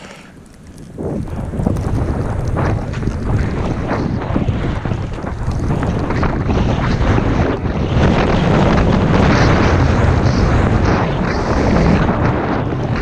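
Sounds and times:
skis hissing through snow: 0:00.0 - 0:01.2
wind rushing over microphone: 0:00.0 - 0:13.0.

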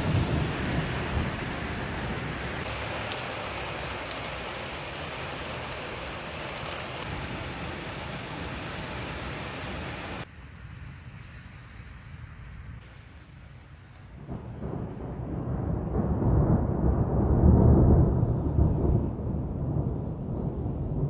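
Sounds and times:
heavy rain splattering: 0:00.0 - 0:10.3
single raindrops ticking: 0:02.4 - 0:07.1.

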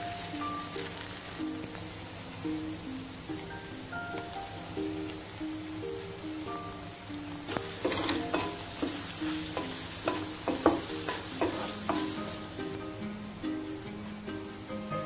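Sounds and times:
chicken sizzling in frying pan: 0:00.0 - 0:15.0
scraping in frying pan: 0:07.5 - 0:13.0.

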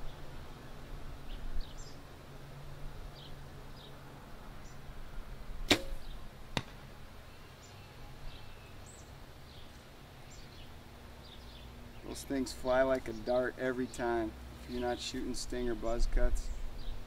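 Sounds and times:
arrow popping balloon: 0:05.7 - 0:06.8
bow string snapping: 0:05.7 - 0:06.8.

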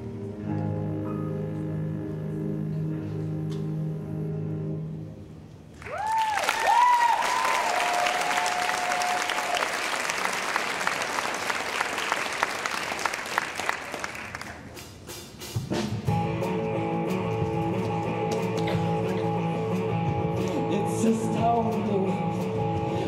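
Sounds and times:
band playing with guitar: 0:00.0 - 0:05.0, 0:15.0 - 0:23.0
audience applause: 0:05.8 - 0:14.8.

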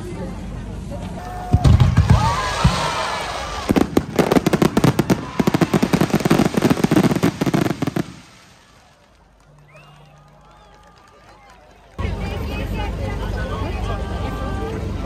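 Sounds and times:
fireworks crackling: 0:01.4 - 0:11.1
fireworks shells booming: 0:01.5 - 0:09.0.

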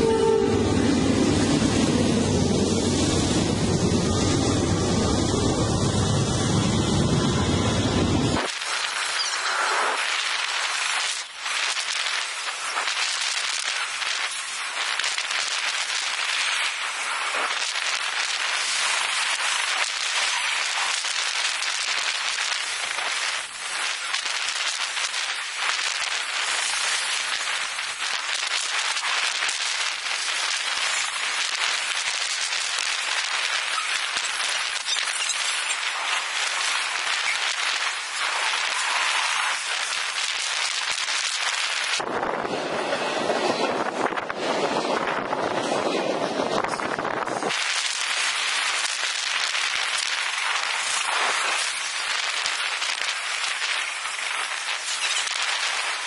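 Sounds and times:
wind on microphone: 0:42.0 - 0:47.6.

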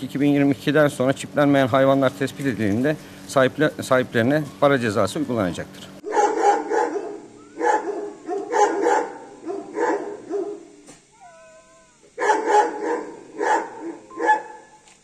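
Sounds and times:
dogs barking: 0:06.0 - 0:11.3, 0:12.1 - 0:14.8
dog whining cry: 0:06.1 - 0:14.8.

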